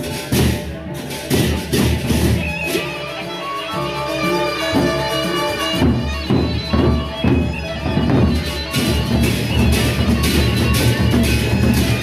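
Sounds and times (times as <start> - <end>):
held melody line: 2.4 - 12.0.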